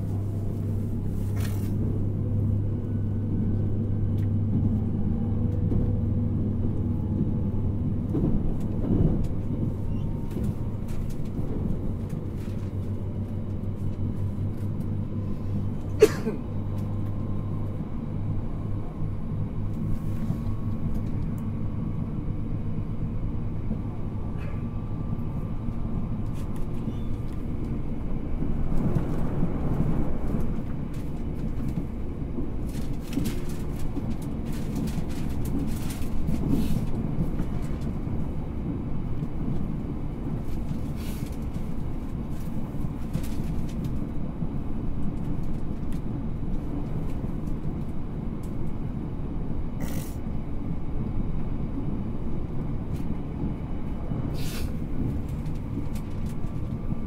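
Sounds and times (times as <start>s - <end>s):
train rumble and hum: 0.0s - 57.0s.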